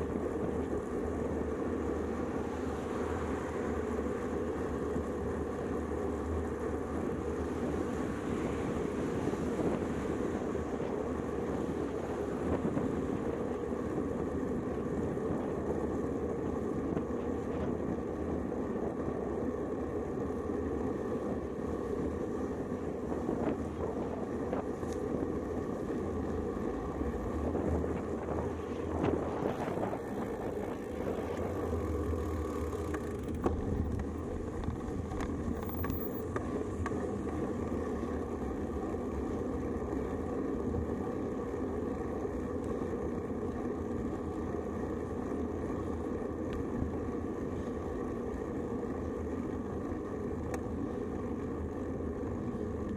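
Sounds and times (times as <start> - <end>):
bike tyres on pavement: 0.0 - 52.9
wind noise: 7.0 - 18.1, 22.0 - 32.2.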